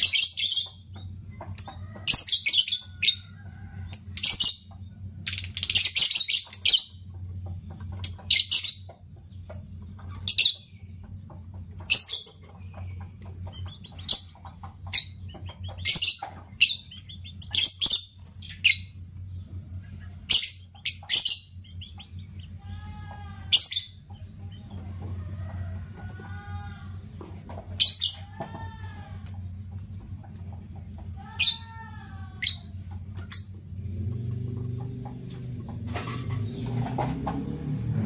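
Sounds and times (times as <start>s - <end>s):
lovebirds chirping shrilly: 0.0s - 1.0s, 1.6s - 3.2s, 3.9s - 7.0s, 13.6s - 19.0s, 19.9s - 22.8s, 23.4s - 24.2s, 27.8s - 28.3s
soft warbling chatter: 9.7s - 33.7s.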